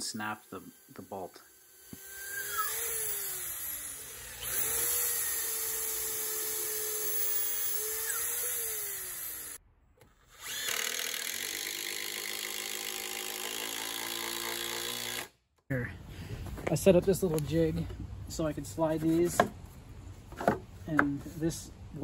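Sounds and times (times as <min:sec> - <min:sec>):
battery-powered drill running: 0:00.0 - 0:09.6, 0:10.2 - 0:15.3
corded electric drill: 0:00.0 - 0:15.4.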